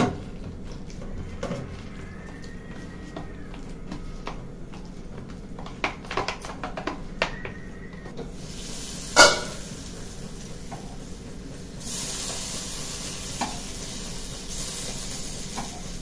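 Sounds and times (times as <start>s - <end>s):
potato slices sizzling in oil: 8.3s - 16.0s
pan lid clanging: 9.2s - 9.7s.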